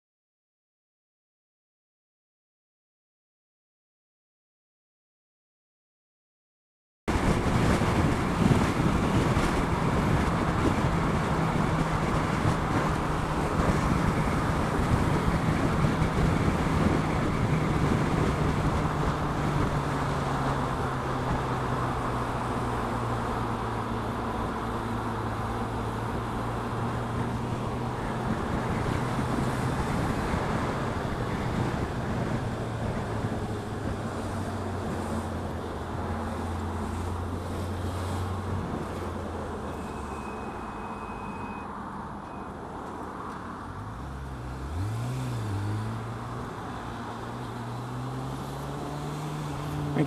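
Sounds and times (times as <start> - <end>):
wind rush over microphone: 7.1 - 22.0, 27.0 - 35.4.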